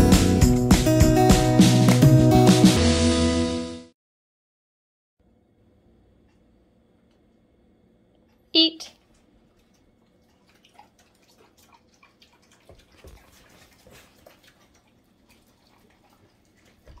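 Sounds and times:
dogs chewing wet food: 9.2 - 17.0.

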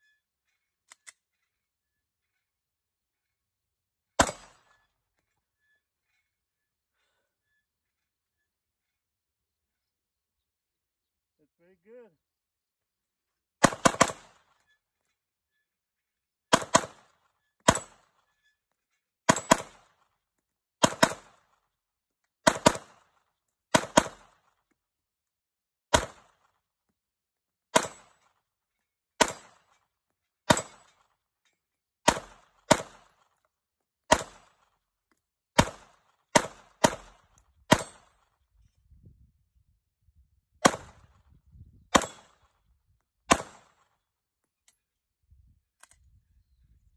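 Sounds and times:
pistol shots: 4.2 - 4.7, 13.6 - 14.6, 16.5 - 18.1, 19.3 - 20.0, 20.8 - 21.6, 22.4 - 24.5, 25.9 - 26.5, 27.7 - 28.2, 29.2 - 29.7, 30.5 - 30.9, 32.0 - 33.3, 34.1 - 34.7, 35.6 - 38.3, 40.6 - 41.1, 41.9 - 42.5, 43.3 - 43.9.

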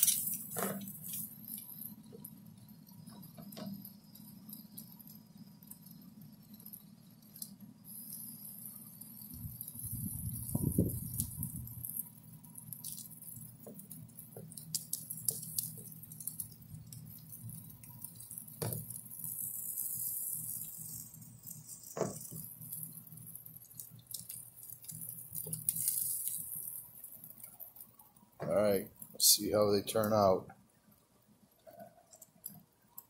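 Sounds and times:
meat sizzling on a grill: 0.0 - 30.4
grease pops: 10.4 - 19.3.

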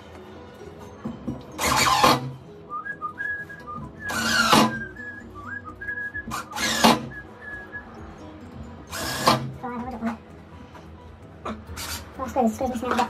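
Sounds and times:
person whistling a tune: 2.6 - 8.2
cordless drill bursts: 4.1 - 4.8, 6.3 - 7.1, 8.9 - 9.5.

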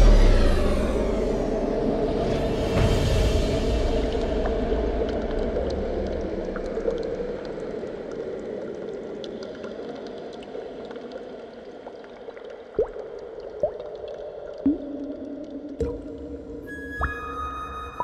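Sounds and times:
low drone: 0.0 - 8.1
bubbling dripping liquid: 4.2 - 17.2.

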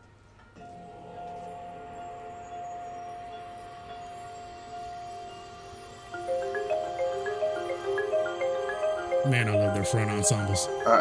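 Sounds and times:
long ringing tone: 0.6 - 11.0
softer tones: 0.6 - 11.0.

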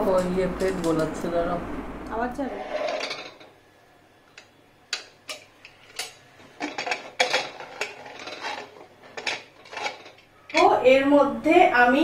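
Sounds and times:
metal cookware clanking: 2.7 - 3.6, 4.3 - 10.8.

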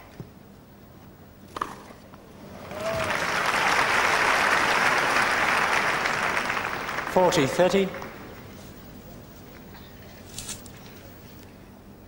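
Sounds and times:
crowd applauding: 2.5 - 8.4.

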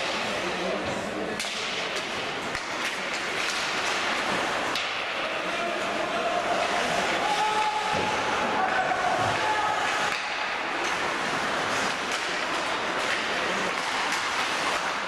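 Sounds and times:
stick and puck clacks: 0.0 - 5.6, 6.4 - 15.0
skate blades scraping ice: 6.4 - 15.0.

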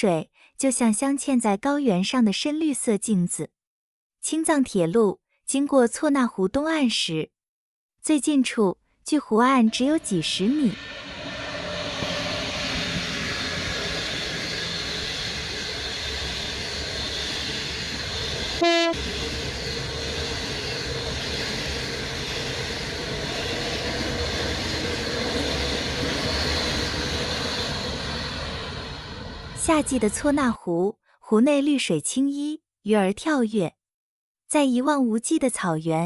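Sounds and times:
train rumble and rail noise: 9.6 - 30.6
train horn blast: 18.6 - 19.1.

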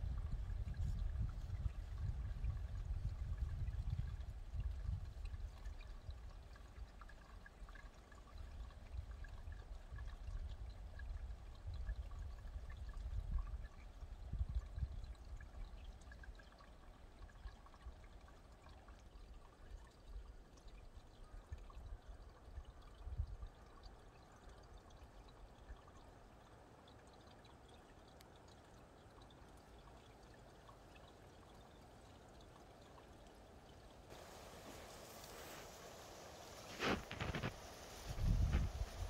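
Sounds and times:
wind rumble on microphone: 0.0 - 6.3, 8.8 - 15.6, 36.7 - 39.0
water trickling under ice: 0.0 - 39.0.

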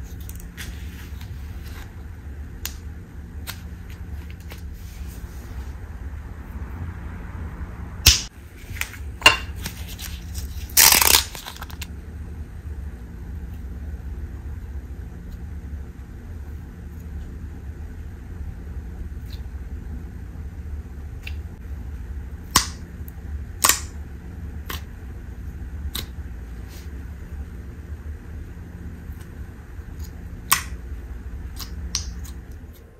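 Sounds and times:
steady low hum: 0.0 - 32.9
plastic packet crinkling: 9.7 - 11.9
sticky slime clicks and pops: 23.6 - 23.9.

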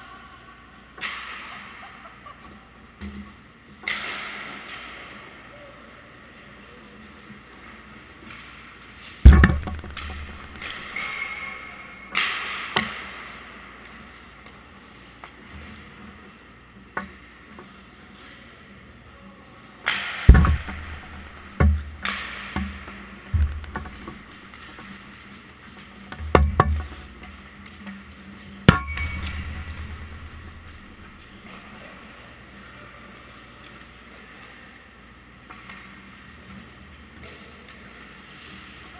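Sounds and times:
puck slamming into boards: 9.3 - 11.2, 20.3 - 22.8, 23.4 - 24.4, 28.7 - 31.4.

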